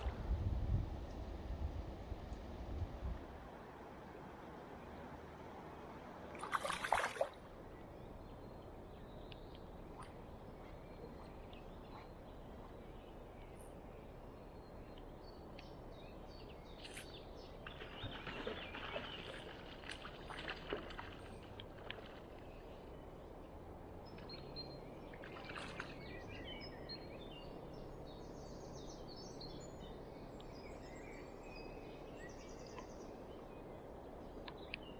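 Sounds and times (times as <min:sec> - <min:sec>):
river water flowing: 0:01.0 - 0:34.9
water splashing: 0:06.3 - 0:07.5, 0:17.6 - 0:22.9, 0:25.0 - 0:26.2.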